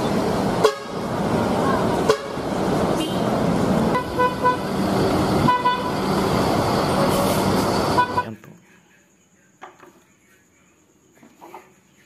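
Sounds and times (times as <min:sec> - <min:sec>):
bus engines running: 0:00.0 - 0:08.4
vehicle horn toots: 0:02.0 - 0:03.3, 0:03.9 - 0:04.7, 0:05.4 - 0:06.0, 0:07.9 - 0:08.4.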